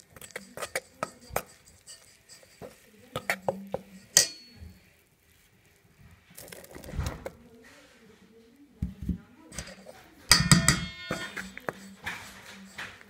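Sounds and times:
spoon clinking on bowl: 0.0 - 4.6, 9.6 - 13.0
spoon stirring in metal bowl: 0.0 - 5.5, 8.9 - 13.0.

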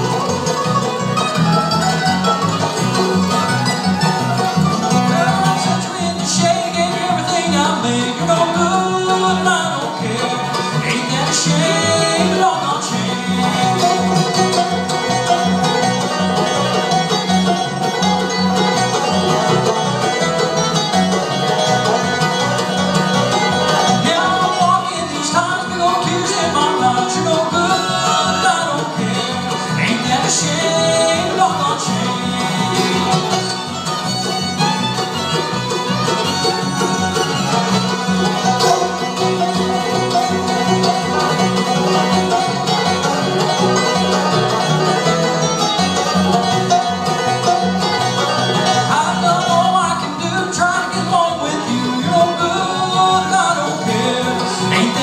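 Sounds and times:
acoustic guitar: 0.0 - 55.0
banjo: 0.0 - 55.0
fiddle: 0.0 - 55.0
upright bass: 0.0 - 55.0.

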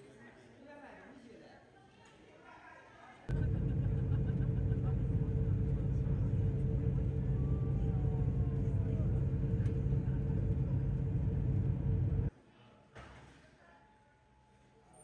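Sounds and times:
constant hum: 3.3 - 12.3
engine and road rumble inside vehicle: 3.3 - 12.3.

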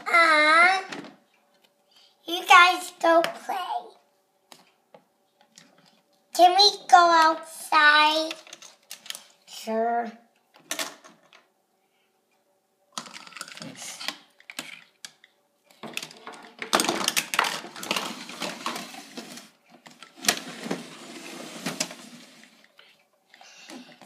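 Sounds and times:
plastic toys clattering on wooden floor: 8.2 - 9.2, 10.6 - 11.4, 13.0 - 22.7.

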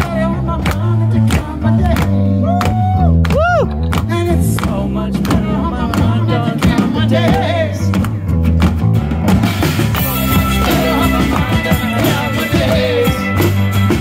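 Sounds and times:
man singing: 0.0 - 2.8, 4.0 - 8.0, 10.0 - 13.6
live rock band playing: 0.0 - 14.0.

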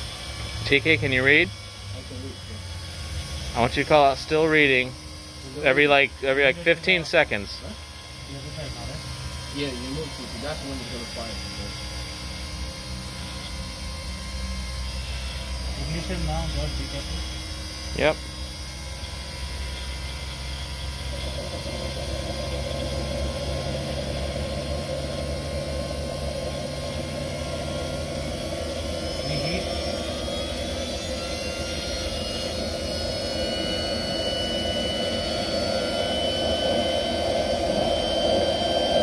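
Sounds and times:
turbine whine: 0.0 - 39.0
turbine rushing noise: 20.0 - 39.0.

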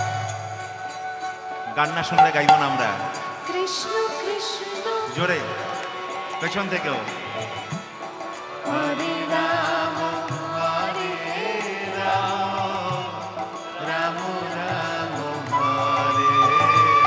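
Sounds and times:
instrumental accompaniment: 1.1 - 5.0
long held high instrumental note: 2.1 - 3.8
chant-like singing: 8.5 - 17.0.

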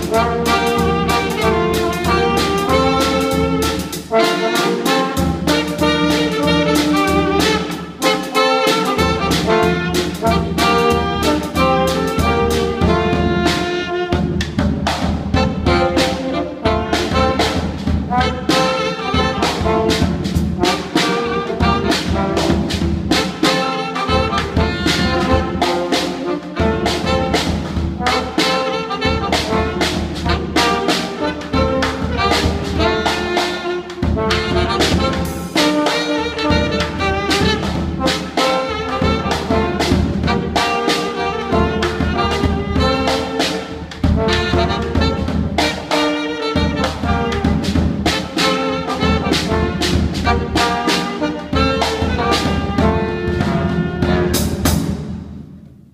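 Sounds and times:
drum kit beat: 0.0 - 55.8
trombone and saxophone tune: 0.0 - 55.8.

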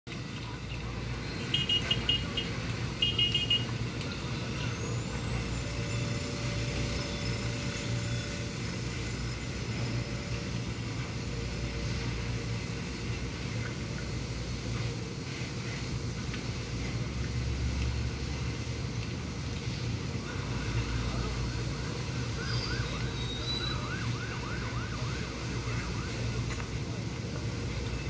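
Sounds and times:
street low rumble: 0.1 - 28.0
rapid high-pitched alarm beeps: 1.3 - 3.7, 20.9 - 26.4.

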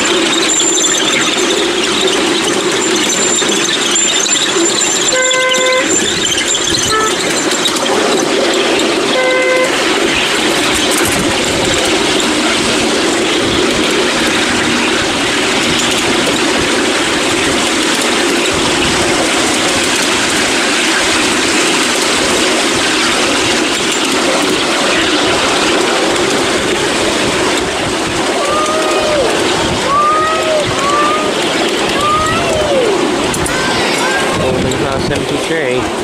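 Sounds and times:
train wheels rattling on rail: 0.0 - 36.0
train horn toot: 5.1 - 6.0, 6.9 - 7.2, 9.1 - 9.9.

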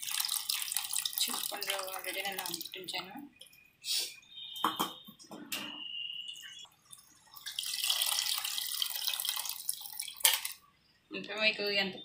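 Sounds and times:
liquid trickling into a pot: 0.0 - 3.6, 6.3 - 10.7.

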